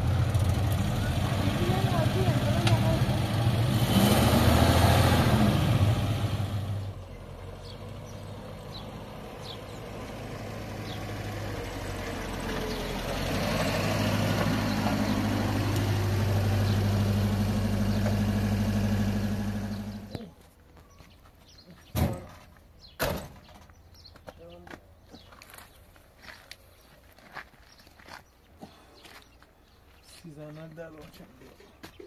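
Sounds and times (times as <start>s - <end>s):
car engine idling: 0.0s - 3.8s, 14.0s - 20.3s.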